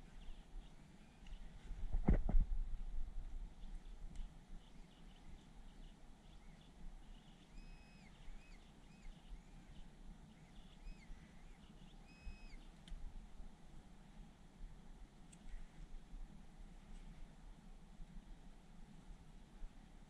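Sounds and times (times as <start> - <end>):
metal detector high beeps: 7.6 - 8.2, 12.1 - 12.6.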